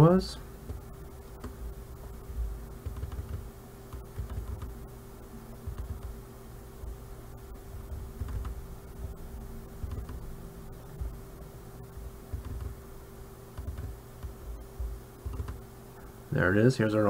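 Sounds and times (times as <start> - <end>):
steady electrical hum: 0.0 - 17.0
soft low thumps: 0.4 - 12.9, 13.5 - 15.7
computer mouse clicks: 2.8 - 4.8, 5.6 - 6.2, 7.7 - 8.6, 9.8 - 10.3, 12.3 - 12.8, 13.6 - 15.6.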